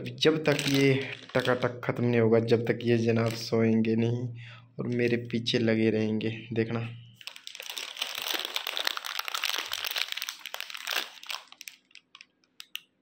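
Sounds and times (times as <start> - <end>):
plastic snack packet crinkling: 0.3 - 1.7, 2.8 - 3.5, 7.2 - 13.0.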